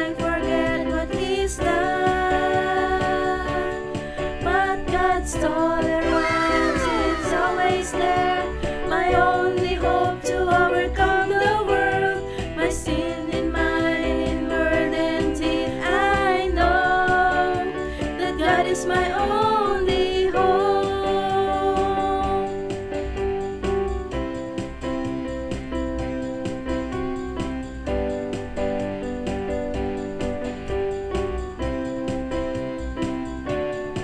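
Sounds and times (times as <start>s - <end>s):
song with vocals and beat: 0.0s - 23.4s.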